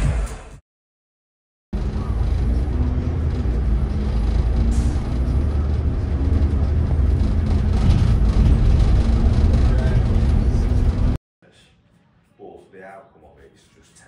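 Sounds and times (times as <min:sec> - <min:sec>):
road vehicle rumble: 0:01.8 - 0:11.2.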